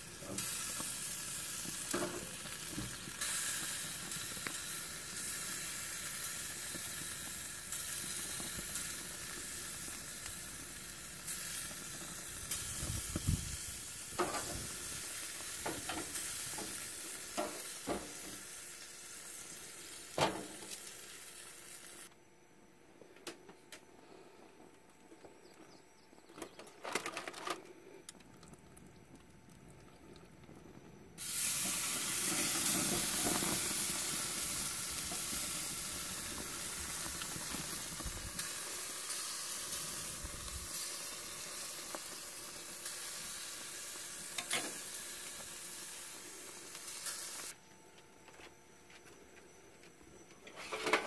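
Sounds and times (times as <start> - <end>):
meat sizzling on grill grates: 0.0 - 22.1, 31.2 - 47.6.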